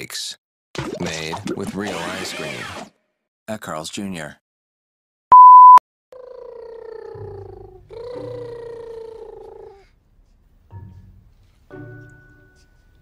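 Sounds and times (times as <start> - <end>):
baby humming mmm: 6.2 - 10.0.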